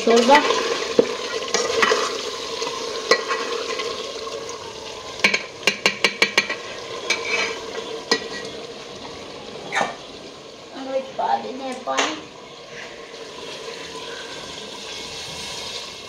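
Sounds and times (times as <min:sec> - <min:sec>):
curry sizzling in a pot: 0:00.0 - 0:16.0
metal spoon knocking against pot: 0:05.2 - 0:06.6.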